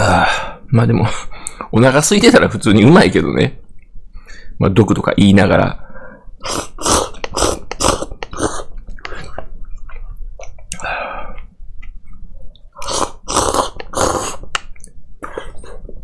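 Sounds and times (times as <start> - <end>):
person slurping noodles: 6.4 - 9.3, 12.8 - 14.6, 15.2 - 16.0.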